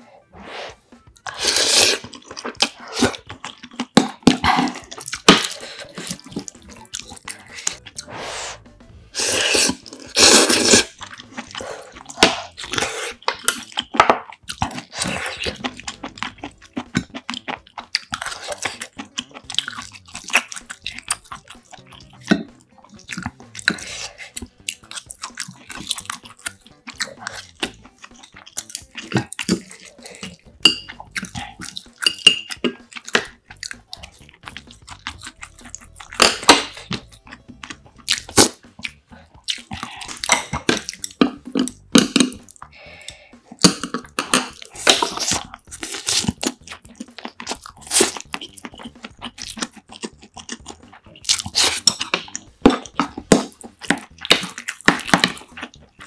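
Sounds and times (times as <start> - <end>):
slurping noodles: 0.0 - 56.0
wet chewing: 1.0 - 56.0.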